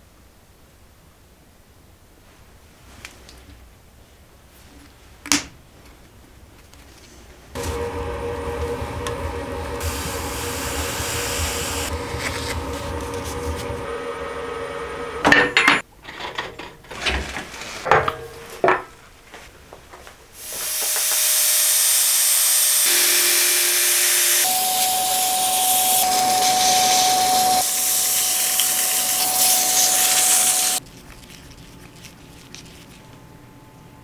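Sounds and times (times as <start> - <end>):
power sander hissing and whining: 7.6 - 15.3, 20.4 - 30.8.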